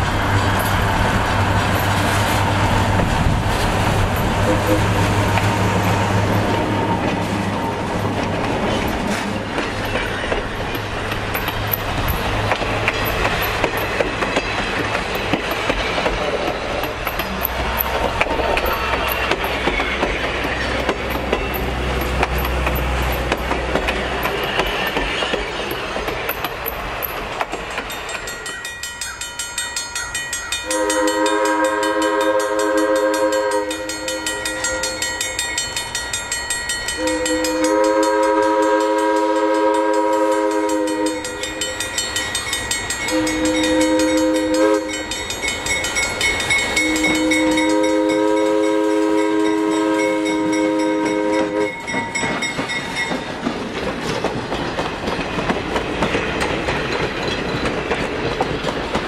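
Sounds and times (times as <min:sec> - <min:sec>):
wheels rolling on rails: 0:00.0 - 0:30.7, 0:40.5 - 0:48.5, 0:50.2 - 0:59.0
distant locomotive horn chord: 0:04.4 - 0:05.1, 0:30.6 - 0:35.0, 0:37.0 - 0:41.6, 0:43.1 - 0:45.1, 0:46.8 - 0:51.9.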